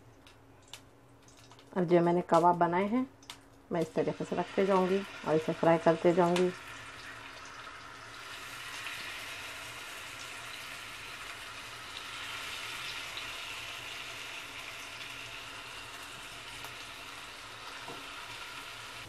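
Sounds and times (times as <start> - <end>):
meat sizzling in oil: 4.0 - 19.0.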